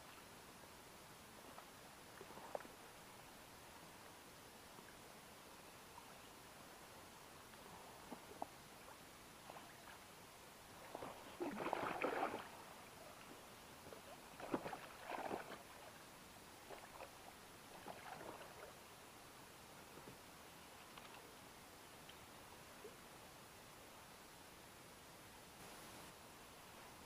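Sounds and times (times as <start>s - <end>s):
fish thrashing and splashing water: 11.4s - 12.5s.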